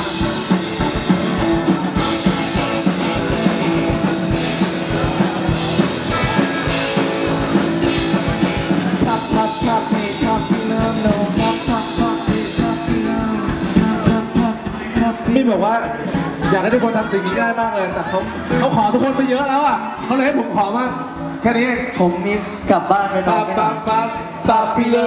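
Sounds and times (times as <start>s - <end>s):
drum kit beat: 0.0s - 20.0s
live rock band playing: 0.0s - 25.0s.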